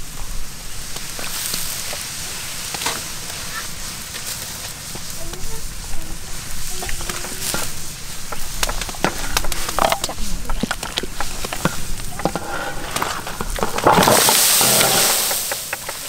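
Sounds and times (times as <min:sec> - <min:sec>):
utensils clicking and clinking: 0:08.3 - 0:16.0.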